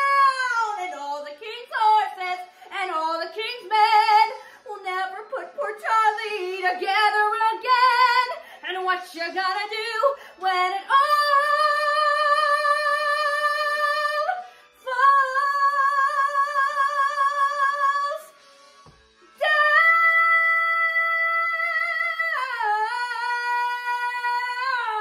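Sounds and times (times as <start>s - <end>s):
woman singing unaccompanied: 0.0s - 18.3s, 19.4s - 25.0s
singer breathing: 4.4s - 4.7s, 8.4s - 8.6s, 10.1s - 10.4s, 14.4s - 14.8s.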